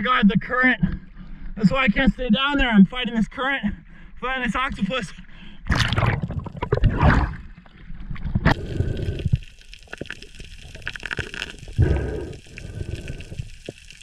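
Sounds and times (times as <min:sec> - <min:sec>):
water gurgling and sloshing: 0:05.6 - 0:14.0.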